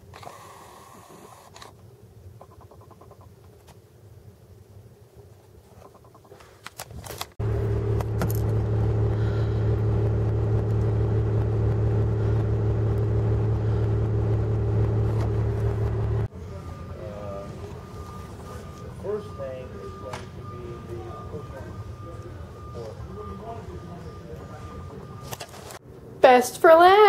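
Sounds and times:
vehicle engine idling: 7.4 - 25.8.

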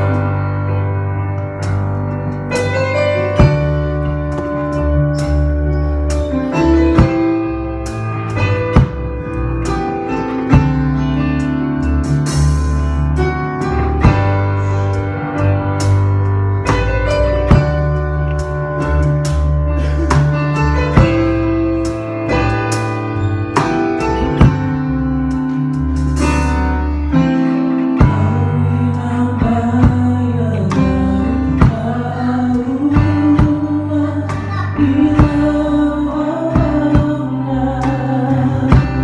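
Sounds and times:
deep bass line: 0.0 - 39.0
keyboard chords: 0.0 - 39.0
drum kit hits: 1.3 - 28.6.

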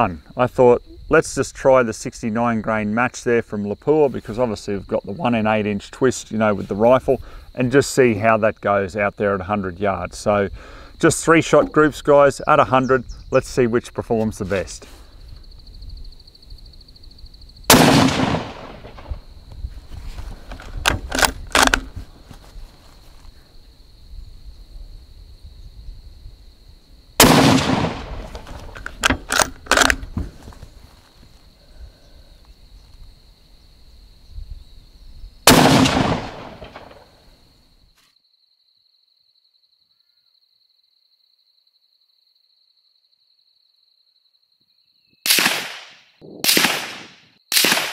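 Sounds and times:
rifle shot with echo: 17.7 - 19.2, 27.2 - 28.5, 35.5 - 37.1, 45.3 - 47.9
rifle bolt clicks: 20.8 - 21.9, 28.8 - 30.1.

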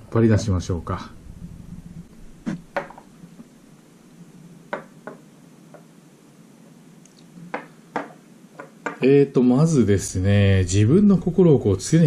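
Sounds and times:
glass bottles knocking on wood: 7.5 - 9.0.

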